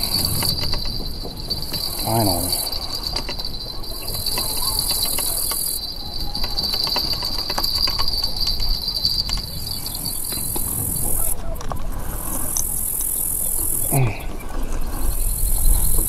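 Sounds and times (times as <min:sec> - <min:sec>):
fishing reel clicking: 0:00.0 - 0:11.3.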